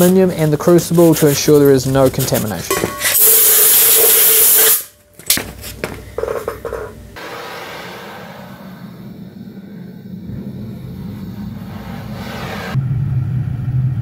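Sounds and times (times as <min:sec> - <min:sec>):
compressed air hissing: 0:01.2 - 0:05.0, 0:07.2 - 0:12.8
gas burner rumbling: 0:05.5 - 0:14.0.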